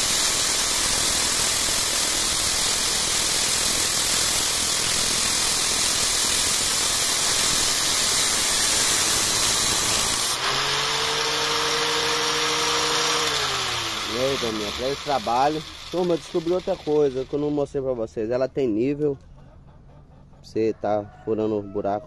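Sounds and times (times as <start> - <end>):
motors whining: 0.0 - 17.6
grinder grinding steel rod: 0.0 - 17.7.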